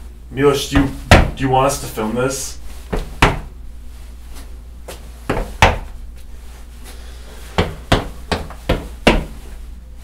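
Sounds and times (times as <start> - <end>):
knocking on a door: 3.0 - 3.5, 7.6 - 9.3.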